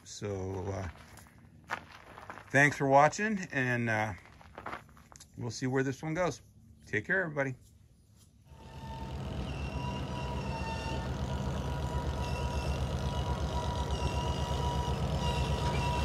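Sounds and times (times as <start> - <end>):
engine running steadily: 8.5 - 16.0
faint steady high tones: 8.5 - 16.0.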